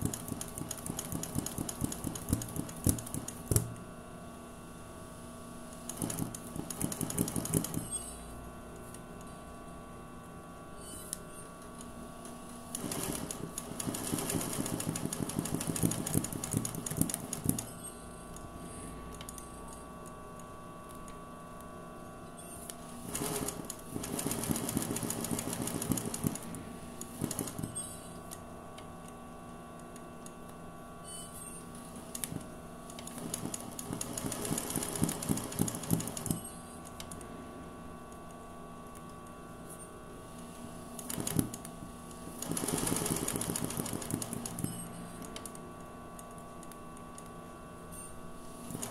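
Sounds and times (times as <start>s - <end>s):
sewing machine stitching: 0.0s - 3.7s, 5.8s - 8.0s, 12.7s - 17.7s, 23.0s - 27.8s, 33.0s - 36.5s, 41.0s - 41.6s, 42.4s - 44.8s.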